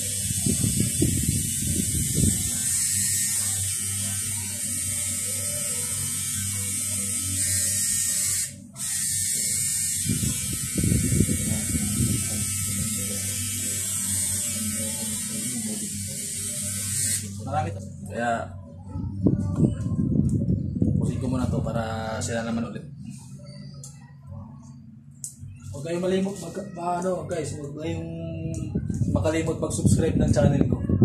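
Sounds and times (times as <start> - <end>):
tattoo machine buzzing: 0.0 - 17.7.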